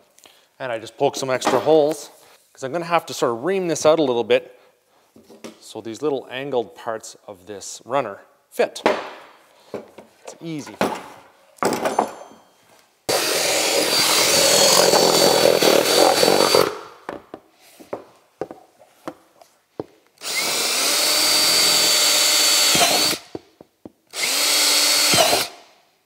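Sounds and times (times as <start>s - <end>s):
handling noises and knocks: 8.8s - 12.6s, 17.0s - 20.1s, 23.3s - 24.1s
power drill boring plastic: 13.1s - 16.8s, 20.2s - 23.3s, 24.1s - 25.6s.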